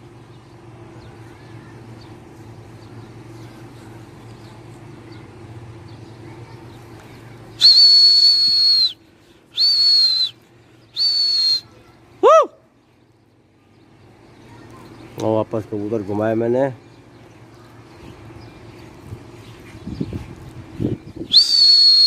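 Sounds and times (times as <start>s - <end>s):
loud high-pitched whistling: 7.6s - 11.7s, 21.2s - 22.0s.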